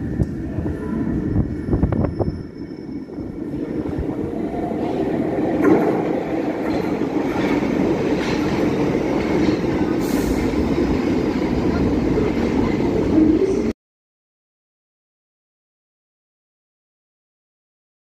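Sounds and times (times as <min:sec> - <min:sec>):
train running noise: 0:00.0 - 0:13.7.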